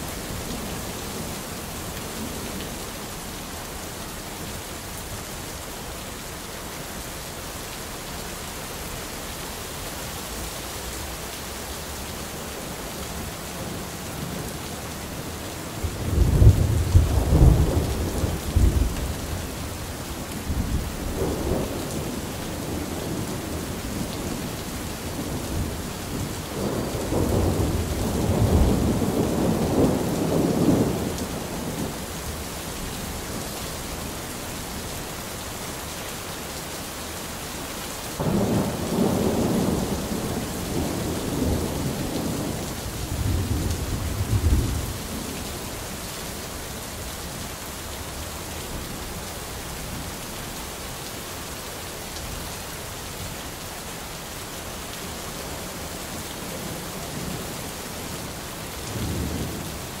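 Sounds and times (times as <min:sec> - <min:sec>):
steady rain falling: 0:00.0 - 1:00.0
thunder rumbling: 0:15.8 - 0:32.0, 0:38.2 - 0:45.4.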